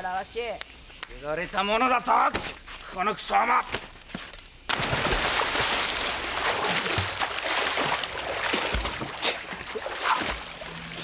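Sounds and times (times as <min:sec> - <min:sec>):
big splash into water: 0:04.7 - 0:10.4
thrashing in water: 0:04.7 - 0:10.8.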